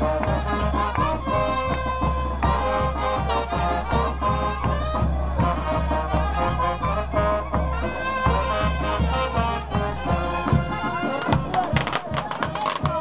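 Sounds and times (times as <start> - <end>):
brass band playing dance tune: 0.0 - 13.0
steady drumbeat: 0.0 - 13.0.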